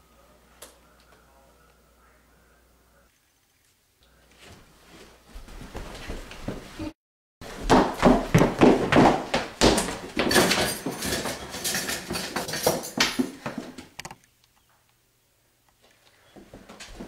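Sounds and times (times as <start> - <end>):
hurried footsteps: 4.3 - 14.0, 15.8 - 17.0.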